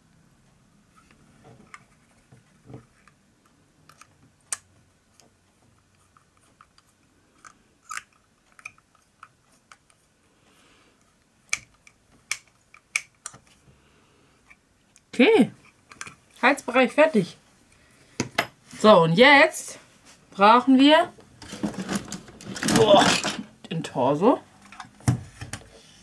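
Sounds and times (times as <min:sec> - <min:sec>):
screwdriver clicking on small parts: 0:11.5 - 0:13.4, 0:15.9 - 0:16.2.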